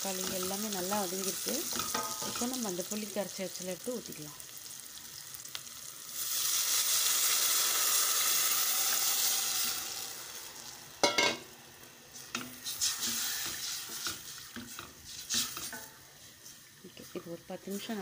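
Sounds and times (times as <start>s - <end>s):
liquid sizzling in hot pot: 0.0s - 18.0s
wooden spoon stirring and scraping: 12.2s - 16.7s.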